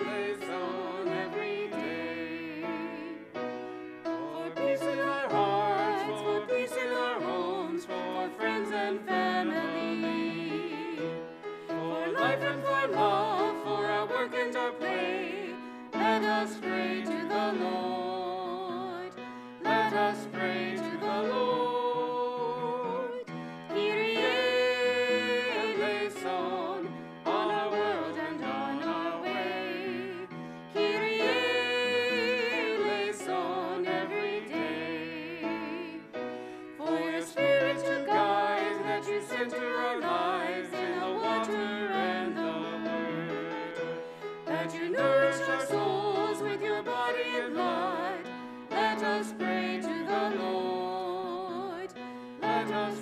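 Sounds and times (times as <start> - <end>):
voices singing liturgy: 0.0 - 53.0.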